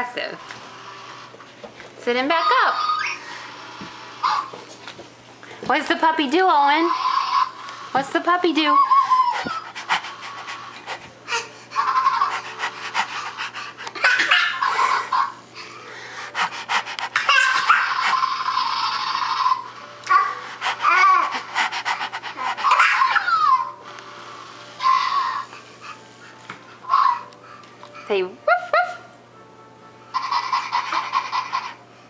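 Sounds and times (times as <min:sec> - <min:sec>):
toddler yelping: 0:02.3 - 0:03.2, 0:17.2 - 0:21.4, 0:22.6 - 0:23.8, 0:24.8 - 0:25.5, 0:26.9 - 0:27.3
toddler panting: 0:08.6 - 0:18.2, 0:20.1 - 0:23.7.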